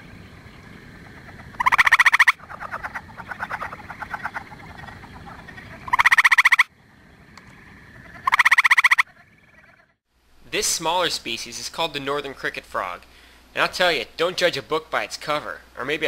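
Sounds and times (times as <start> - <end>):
background frog chorus hum: 0.0 - 10.1
treefrog trilling: 0.8 - 6.7, 7.4 - 10.0.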